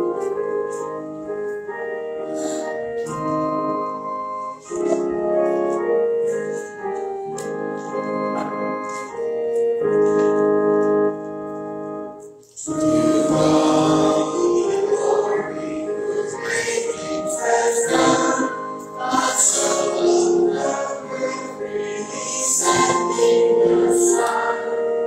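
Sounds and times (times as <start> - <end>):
church organ chords: 0.0 - 25.0
people singing a hymn: 12.6 - 25.0.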